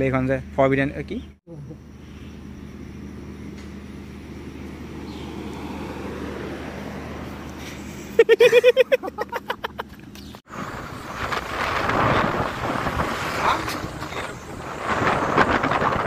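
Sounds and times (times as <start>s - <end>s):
motorbike engine and road noise: 0.0s - 16.0s
wind rushing over microphone: 10.5s - 16.0s.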